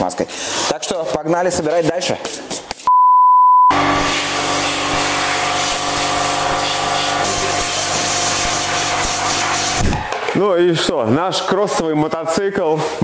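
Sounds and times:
test-tone beep: 2.9 - 3.8
compressed-air blow gun hissing: 4.0 - 10.0.

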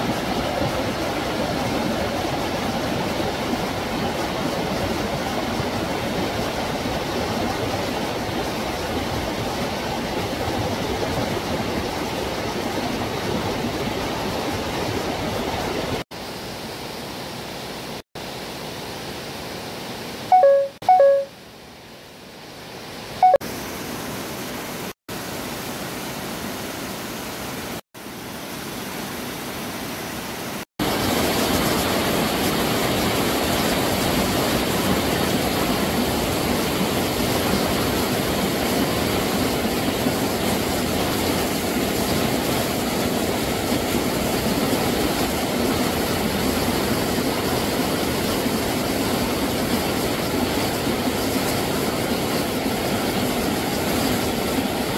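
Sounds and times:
mountain stream rushing: 0.0 - 54.9.

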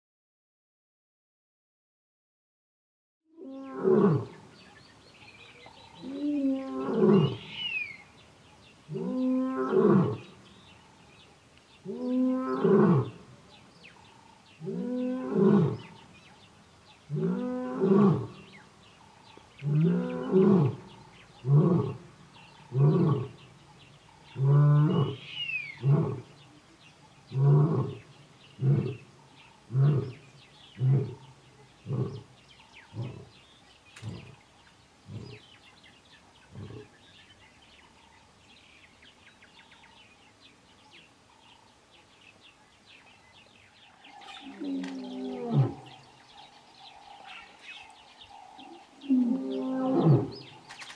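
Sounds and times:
lion roaring and grunting: 22.7 - 23.4, 27.3 - 29.1, 29.7 - 32.3, 32.9 - 33.4, 44.2 - 46.1, 48.6 - 50.6.

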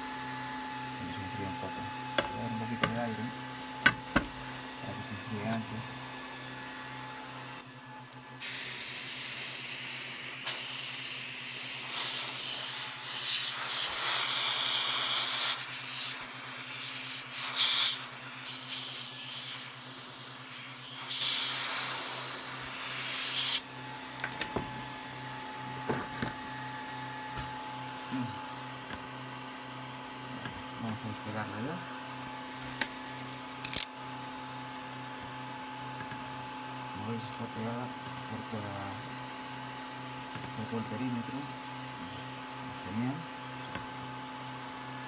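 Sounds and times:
compressed air hissing: 8.4 - 23.6.

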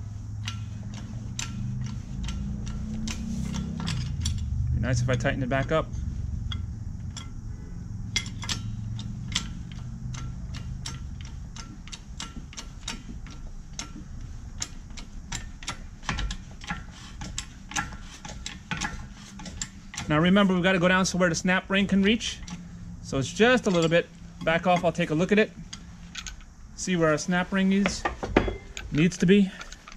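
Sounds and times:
low hum: 0.0 - 29.9
hydraulic press handle clicking: 8.2 - 20.4.

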